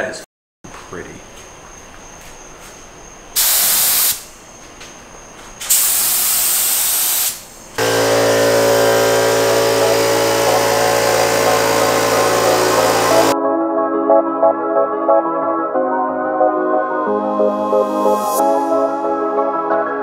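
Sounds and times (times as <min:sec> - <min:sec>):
spray gun hissing: 0:03.4 - 0:04.3, 0:05.6 - 0:13.4
background music: 0:10.6 - 0:20.0.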